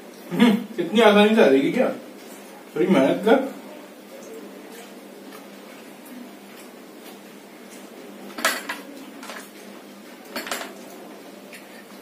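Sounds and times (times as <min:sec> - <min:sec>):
spoons clinking against plates: 0:07.7 - 0:09.6, 0:10.2 - 0:11.9.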